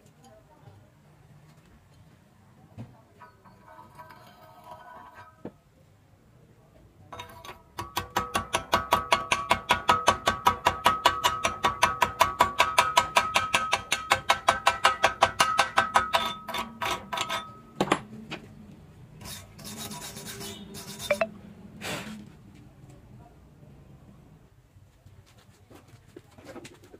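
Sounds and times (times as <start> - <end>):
scraping on metal: 3.2 - 5.5, 7.2 - 7.6, 16.0 - 17.6, 19.2 - 21.2.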